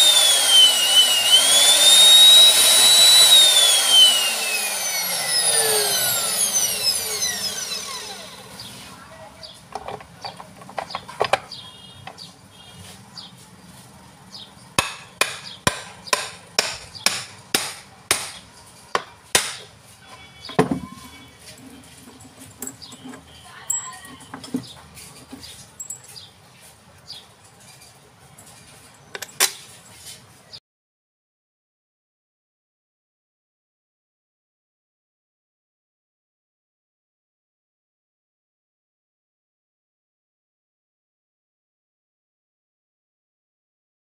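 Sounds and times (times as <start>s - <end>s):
electric motor whining: 0.0s - 8.8s
clicks and knocks: 9.8s - 11.5s
sharp metallic taps: 14.8s - 19.7s.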